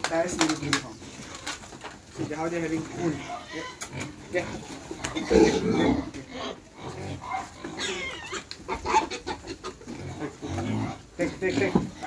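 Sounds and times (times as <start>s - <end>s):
crunching clicks: 0.0s - 2.0s
pigs chewing: 0.0s - 12.0s
pigs grunting: 0.3s - 12.0s
high-pitched pig call: 3.1s - 4.1s, 5.1s - 11.0s.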